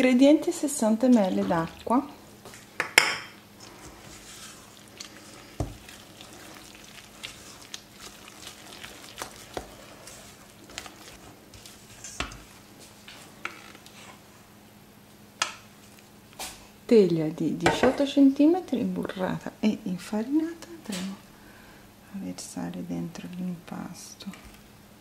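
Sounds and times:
spatula stirring thick batter: 0:03.5 - 0:14.2.

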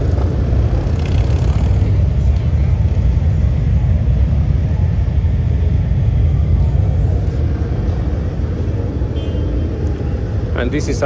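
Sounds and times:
motorcycle engines rumbling: 0:00.0 - 0:11.0.

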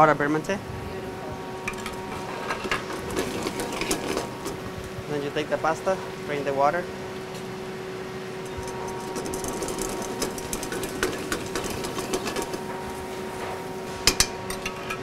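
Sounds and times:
steady hum: 0:00.0 - 0:15.0
pan rattling and scraping: 0:01.6 - 0:05.1, 0:08.4 - 0:12.9, 0:13.9 - 0:15.0
sharp metal knocks: 0:08.4 - 0:15.0.

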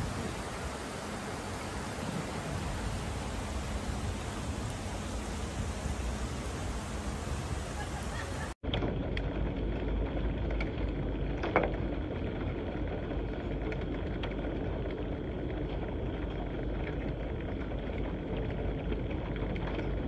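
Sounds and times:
floodwater rushing: 0:00.0 - 0:08.6
rain pouring: 0:00.0 - 0:08.6.

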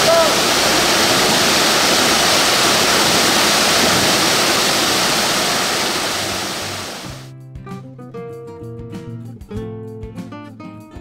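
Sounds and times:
waterfall rushing: 0:00.0 - 0:07.3
music with plucked notes: 0:07.2 - 0:11.0.

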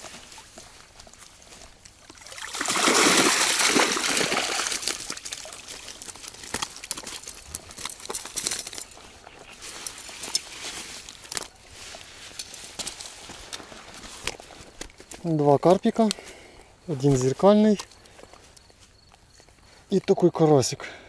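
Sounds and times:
wet net rustling and clicking: 0:01.8 - 0:15.2
water pouring out of a net: 0:02.2 - 0:06.5.

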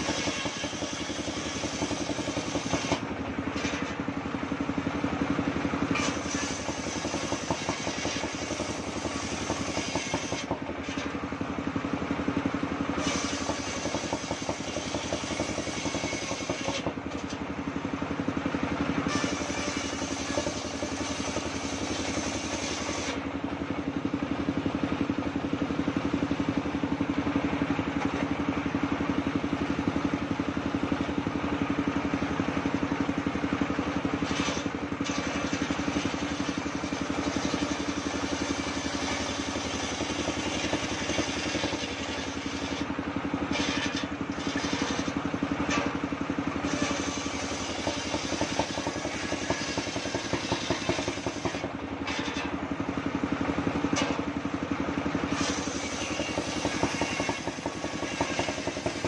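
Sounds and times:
circular saw ripping log: 0:00.0 - 0:04.0, 0:05.9 - 0:11.2, 0:13.0 - 0:17.4, 0:19.0 - 0:23.3, 0:34.2 - 0:46.0, 0:46.6 - 0:52.6, 0:55.2 - 0:59.0.

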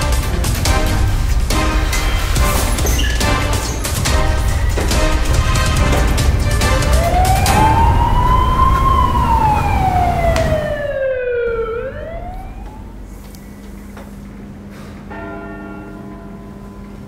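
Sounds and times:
low rumble: 0:04.0 - 0:13.2
siren wailing: 0:06.5 - 0:13.1.

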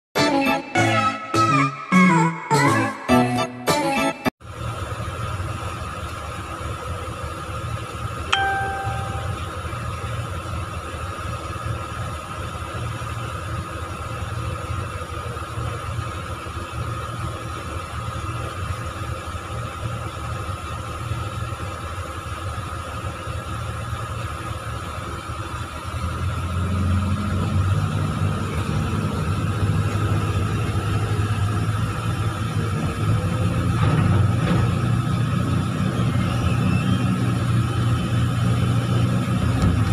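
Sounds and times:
excavator diesel engine rumbling: 0:04.4 - 0:39.9
short ding: 0:08.3 - 0:09.7.

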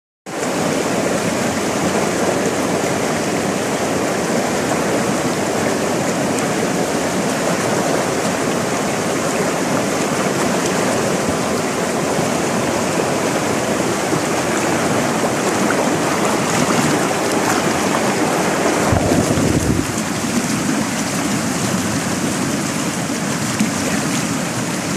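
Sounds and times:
stream rushing over rocks: 0:00.3 - 0:24.9.

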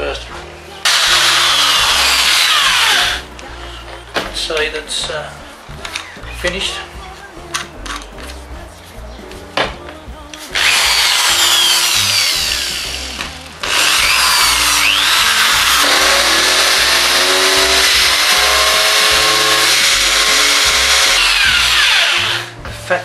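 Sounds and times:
electric drill grinding: 0:00.8 - 0:03.3, 0:10.5 - 0:22.6.

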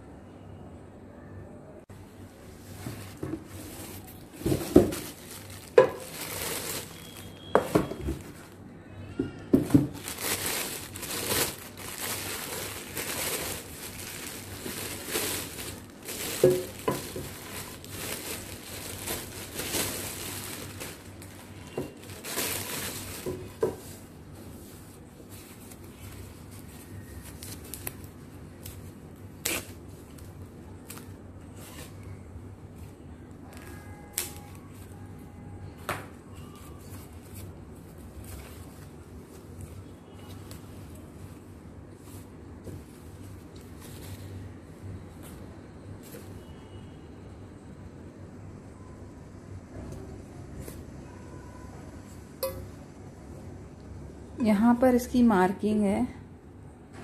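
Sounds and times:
plastic wrapping crinkling: 0:02.5 - 0:35.2, 0:36.3 - 0:46.5
cardboard box rustling: 0:02.7 - 0:08.5.

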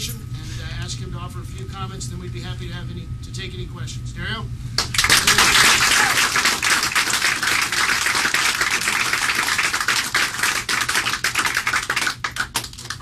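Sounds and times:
people applauding: 0:04.8 - 0:13.0.

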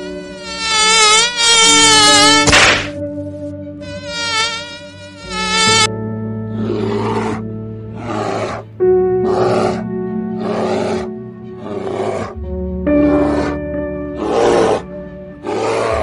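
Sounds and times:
fly-like buzz: 0:00.0 - 0:03.0, 0:03.8 - 0:05.9
background music with sustained chords: 0:00.0 - 0:16.0
bears roaring: 0:06.5 - 0:16.0.

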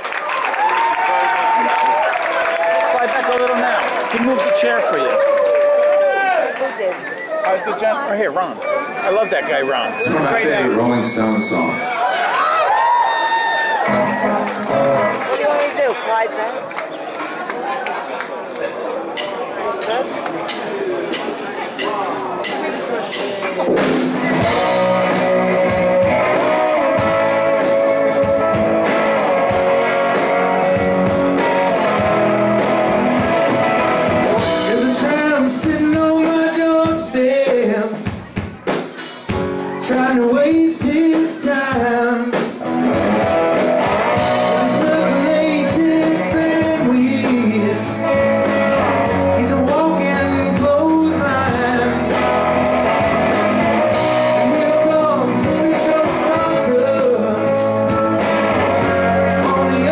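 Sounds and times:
rock band playing: 0:09.1 - 0:16.3, 0:19.1 - 0:59.9
man singing: 0:34.4 - 0:38.2, 0:39.7 - 0:42.6, 0:44.3 - 0:48.3, 0:49.0 - 0:52.4, 0:54.1 - 0:58.0, 0:58.8 - 0:59.9.

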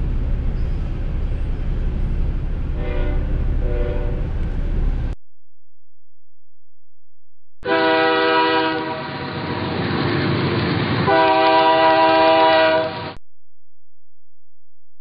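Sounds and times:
rushing train noise: 0:00.0 - 0:05.2, 0:07.7 - 0:13.2
locomotive air horn blasts: 0:02.7 - 0:04.3, 0:07.6 - 0:09.5, 0:11.1 - 0:13.2.

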